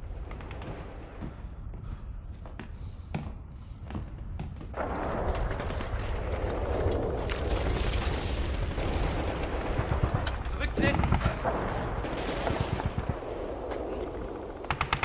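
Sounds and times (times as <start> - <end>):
gunfire and shelling: 4.8 - 15.0.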